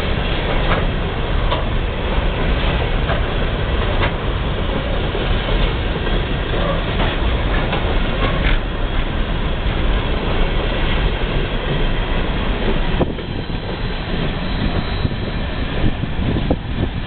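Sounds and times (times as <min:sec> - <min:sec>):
freight train wheels rumbling: 0:00.0 - 0:17.0.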